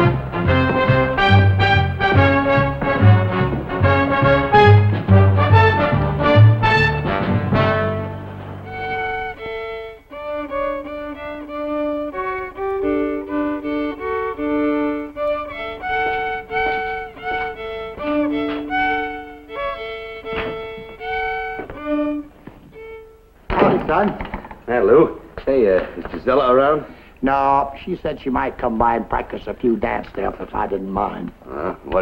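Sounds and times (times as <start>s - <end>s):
orchestral music: 0.0s - 9.4s, 11.6s - 16.8s, 17.4s - 19.9s
solo violin played slowly: 0.0s - 23.5s.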